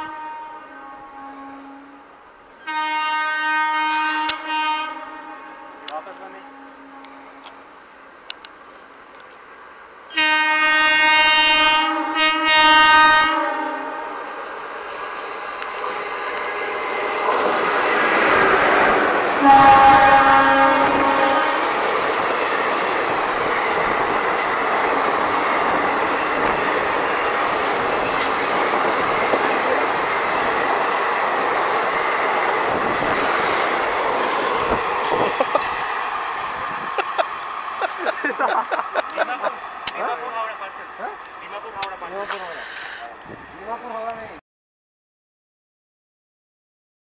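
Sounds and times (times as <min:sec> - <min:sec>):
locomotive air horn blasts: 0:00.0 - 0:07.7, 0:10.1 - 0:14.2, 0:19.4 - 0:21.8
train rumble: 0:04.2 - 0:44.4
train wheels clickety-clack: 0:20.8 - 0:35.7.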